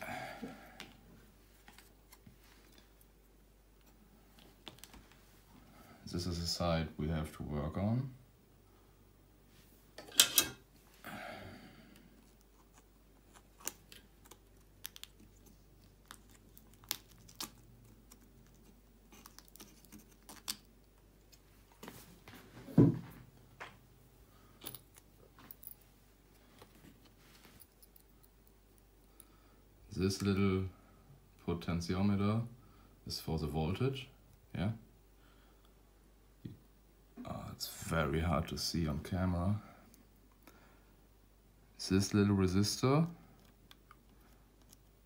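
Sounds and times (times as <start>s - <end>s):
thump on table: 22.7s - 23.1s.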